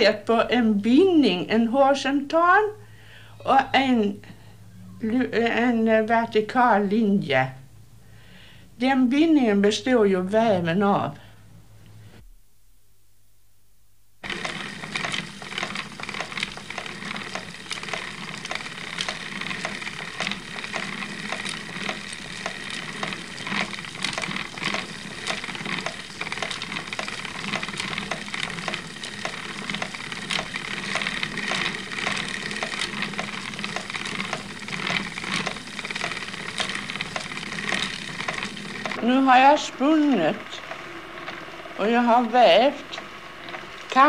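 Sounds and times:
spinning wheel whirring and clicking: 14.2s - 44.0s.

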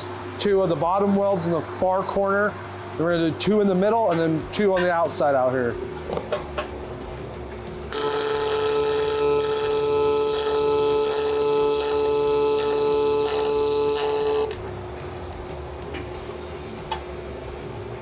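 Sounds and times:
welder hum: 7.7s - 15.4s
welding arc crackling sizzle: 7.9s - 14.6s.

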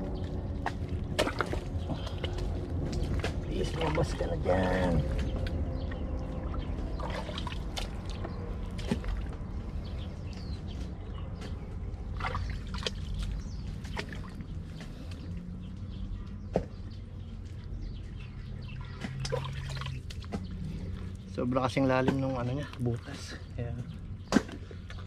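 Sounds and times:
mud and water squelching: 0.0s - 25.0s
small splashes: 0.2s - 5.6s, 6.2s - 9.4s, 12.0s - 15.1s, 18.8s - 20.8s.

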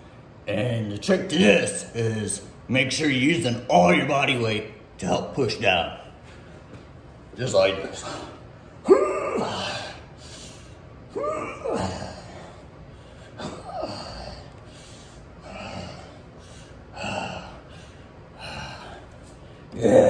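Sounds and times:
man exhaling and grunting: 8.0s - 10.1s, 11.1s - 12.7s, 13.3s - 14.5s, 15.4s - 16.3s, 16.9s - 17.8s, 19.7s - 20.0s.

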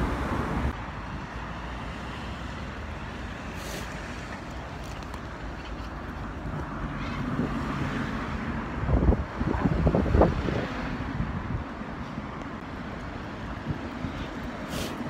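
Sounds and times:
road traffic rumble: 0.0s - 15.0s
wind on microphone: 8.7s - 11.8s.

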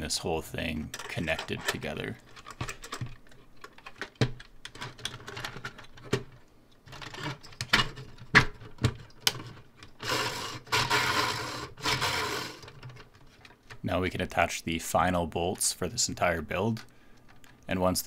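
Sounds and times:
plastic parts clicking: 0.9s - 13.8s.

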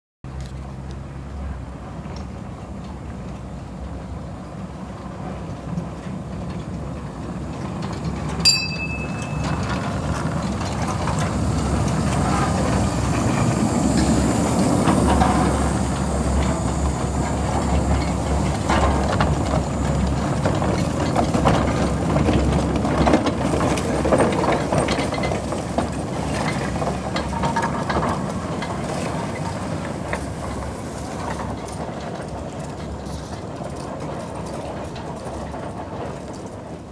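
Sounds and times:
train rumble: 0.3s - 36.9s
train wheels clicking over rail joints: 0.3s - 36.9s
short sharp ringing tone: 8.5s - 9.9s.

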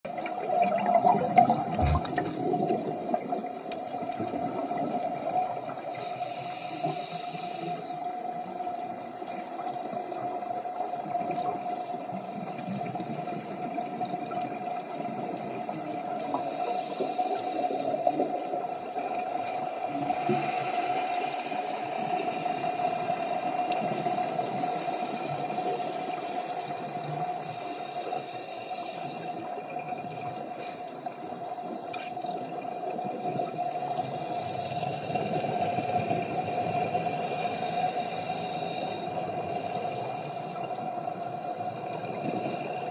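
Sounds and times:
regulator bubbles underwater: 0.1s - 6.1s
rushing water noise: 0.1s - 6.4s.

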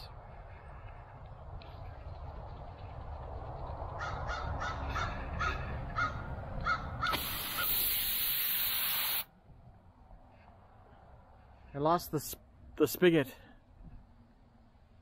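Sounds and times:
crow cawing: 4.0s - 7.3s
aerosol spray hissing: 7.1s - 9.3s.

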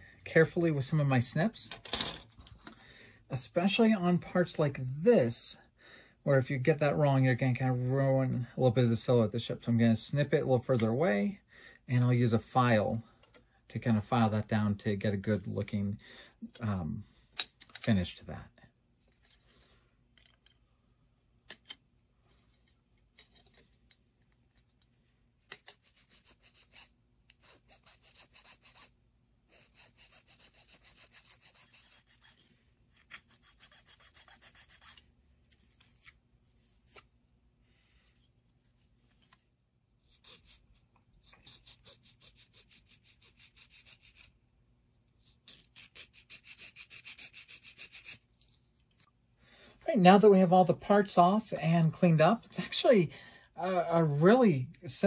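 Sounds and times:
file rasping on plastic: 25.5s - 35.0s, 40.0s - 44.4s, 45.2s - 48.3s.

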